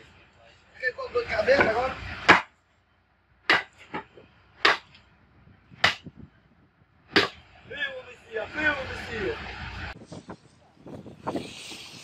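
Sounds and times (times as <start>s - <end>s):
sharp chopping knocks: 2.3s - 2.5s, 3.5s - 4.0s, 4.6s - 4.9s, 5.8s - 6.1s, 7.1s - 7.4s.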